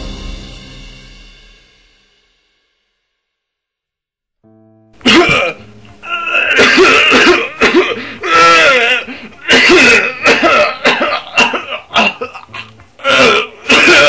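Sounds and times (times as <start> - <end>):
man coughing: 5.0 - 5.7, 6.4 - 14.0.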